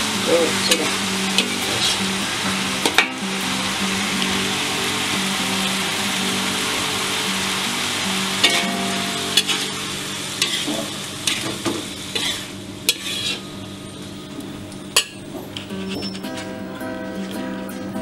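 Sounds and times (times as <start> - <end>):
frying sizzle: 0.0 - 18.0
spatula scraping wok: 0.6 - 3.2, 8.4 - 13.6, 15.0 - 16.5
spatula clinking on wok: 8.4 - 8.8.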